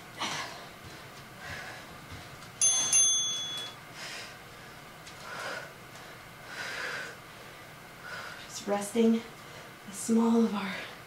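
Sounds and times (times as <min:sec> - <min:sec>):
high metallic ring: 0:02.6 - 0:03.8.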